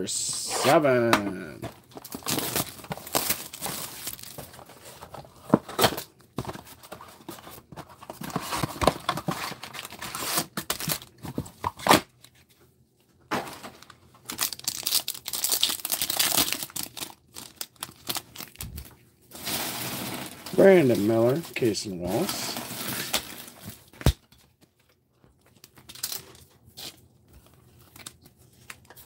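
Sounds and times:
foil pack tearing and crinkling: 0:02.0 - 0:04.5, 0:14.3 - 0:21.4, 0:22.1 - 0:24.2.

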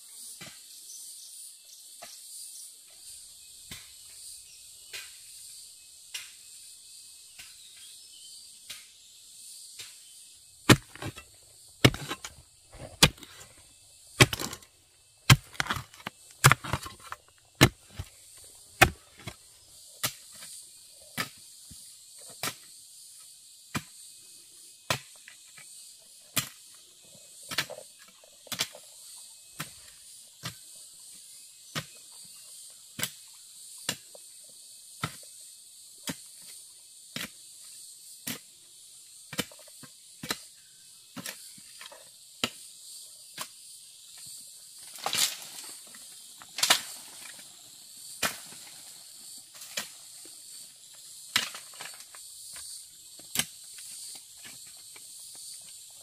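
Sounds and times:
insects chirring: 0:00.0 - 0:56.0
digging tool striking earth and stones: 0:09.7 - 0:22.8, 0:23.6 - 0:24.1, 0:24.9 - 0:25.7, 0:26.3 - 0:26.7, 0:27.4 - 0:28.8, 0:29.5 - 0:30.7, 0:31.7 - 0:32.0, 0:39.2 - 0:55.8.

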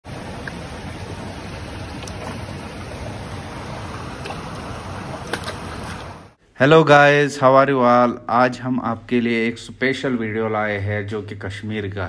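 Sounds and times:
water rushing through channel: 0:00.0 - 0:06.4.

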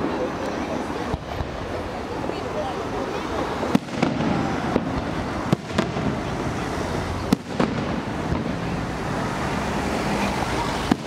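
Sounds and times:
steady background noise: 0:00.0 - 0:11.0
firework shells bursting: 0:03.6 - 0:09.2.

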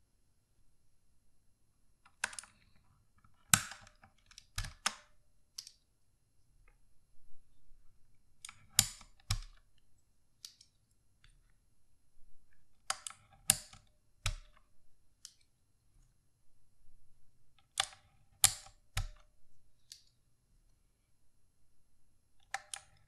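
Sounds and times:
keycaps snapping off: 0:22.4 - 0:23.0.

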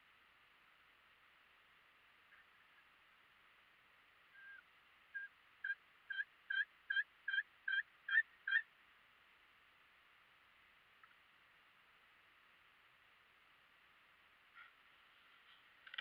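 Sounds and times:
turkey yelping: 0:04.3 - 0:08.7.

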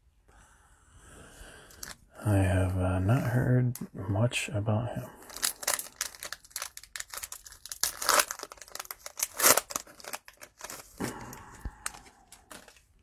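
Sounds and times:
cellophane wrapper crinkling and tearing: 0:05.2 - 0:13.0.

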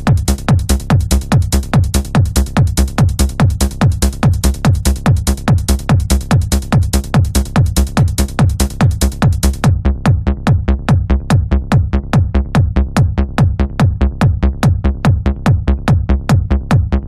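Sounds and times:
bright hi-hat: 0:00.0 - 0:09.7
driving kick drum: 0:00.0 - 0:17.0
hard trance music: 0:00.0 - 0:17.0.

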